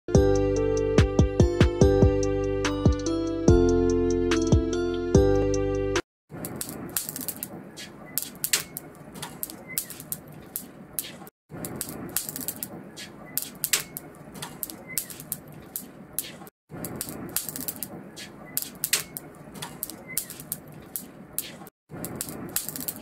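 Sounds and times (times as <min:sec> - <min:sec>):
music jingle: 0:00.2 - 0:06.0
sharp clicks: 0:06.4 - 0:23.0.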